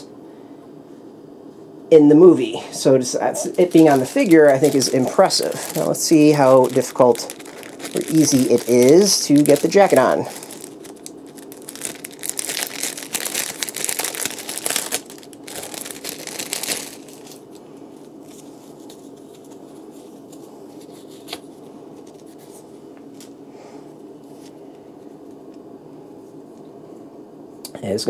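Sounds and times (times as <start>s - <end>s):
small jacket crinkling and rustling: 2.8s - 22.5s.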